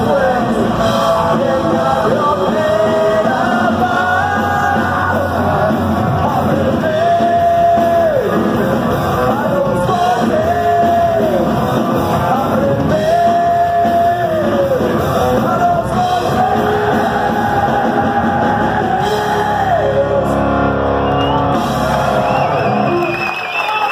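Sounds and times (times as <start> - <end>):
person singing long notes: 0.0 - 20.8
rock band playing live: 0.0 - 23.8.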